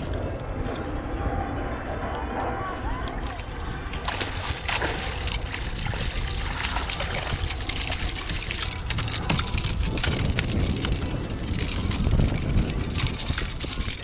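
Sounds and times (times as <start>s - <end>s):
wind buffeting microphone: 0.0s - 14.0s
water slapping kayak hull: 3.2s - 14.0s.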